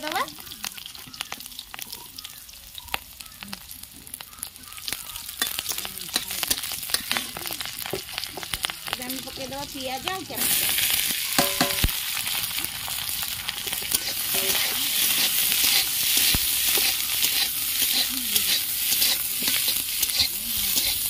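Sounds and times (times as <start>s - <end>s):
vegetables sizzling in oil: 0.0s - 21.0s
metal ladle clinking on pan: 11.4s - 11.9s, 14.3s - 14.8s.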